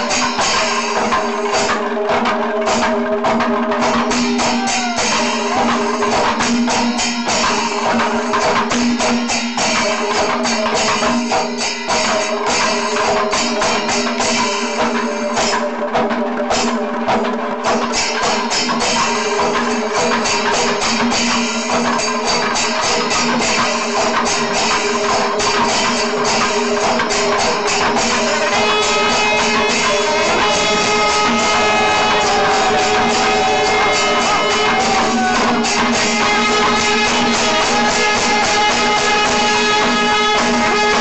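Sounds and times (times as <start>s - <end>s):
small cymbals clashing: 0.0s - 2.0s, 17.7s - 41.0s
drums in fast rhythm: 0.0s - 41.0s
steady held tone: 27.7s - 38.9s.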